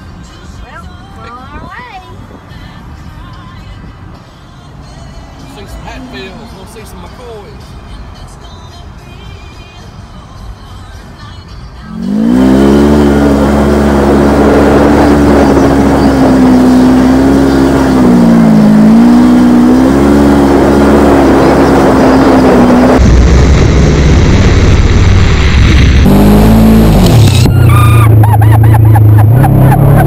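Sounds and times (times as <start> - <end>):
off-road vehicle engine revving: 11.8 - 30.0.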